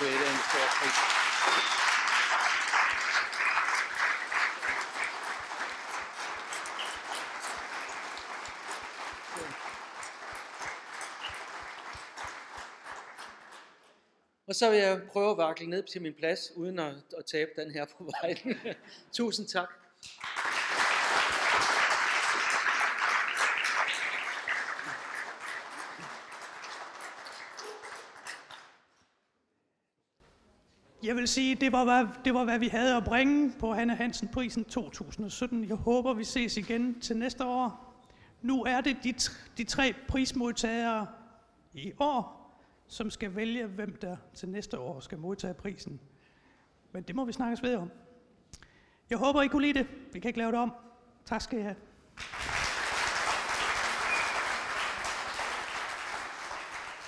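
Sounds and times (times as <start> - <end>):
audience applauding: 0.0 - 14.0, 20.0 - 28.9, 52.2 - 57.0.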